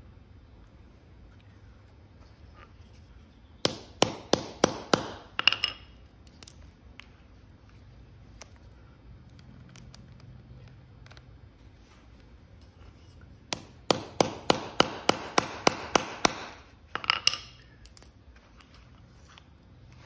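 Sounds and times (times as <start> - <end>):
hammer striking metal punch: 3.7 - 5.8, 13.5 - 16.6.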